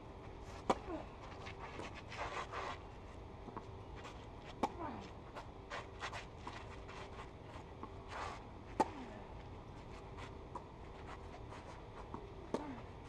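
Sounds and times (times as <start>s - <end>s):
racket striking tennis ball: 8.7s - 9.1s.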